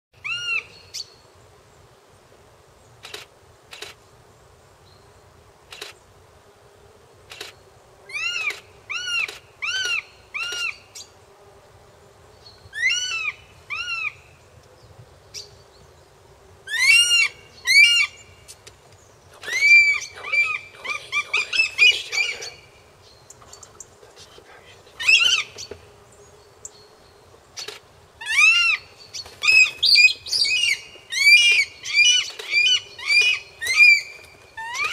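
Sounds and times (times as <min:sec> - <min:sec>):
raptors calling sharply: 0:19.3 - 0:25.8
wing-flapping and scuffling: 0:29.2 - 0:30.0.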